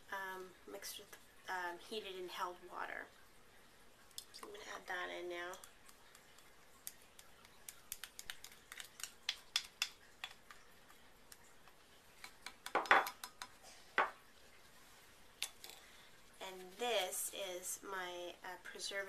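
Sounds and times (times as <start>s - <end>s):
glass knocking against bowl: 12.7s - 13.4s.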